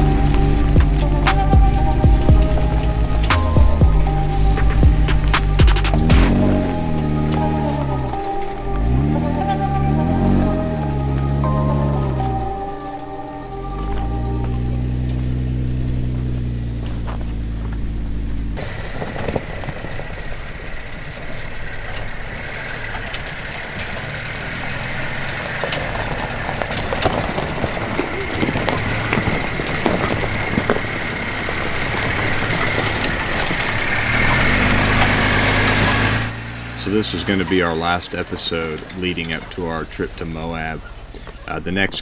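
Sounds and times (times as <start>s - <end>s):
low engine drone: 0.0s - 42.0s
tyres crunching over dirt: 0.0s - 42.0s
small stones clicking and popping: 25.3s - 34.0s.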